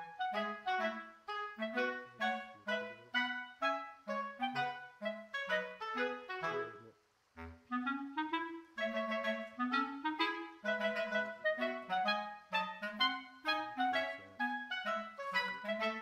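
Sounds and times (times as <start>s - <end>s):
melody of short even notes: 0.0s - 6.8s, 7.7s - 16.0s.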